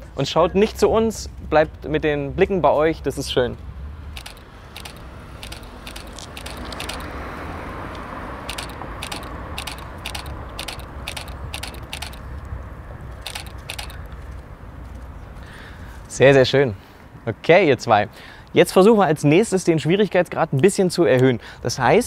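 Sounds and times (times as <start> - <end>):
car passing: 3.7 - 14.8
camera shutter clicks: 4.2 - 7.2, 8.4 - 12.3, 13.2 - 14.1.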